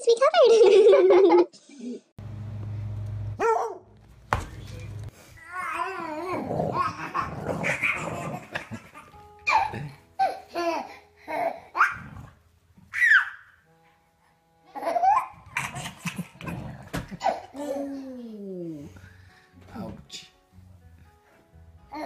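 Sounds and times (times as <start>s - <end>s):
baby laughing: 14.7s - 18.2s.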